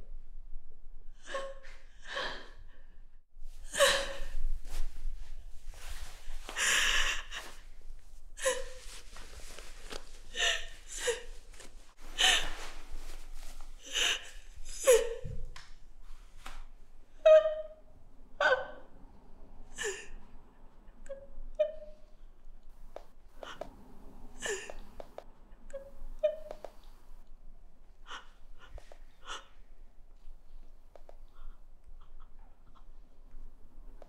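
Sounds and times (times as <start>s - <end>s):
woman sobbing: 13.8s - 15.4s, 25.6s - 26.6s.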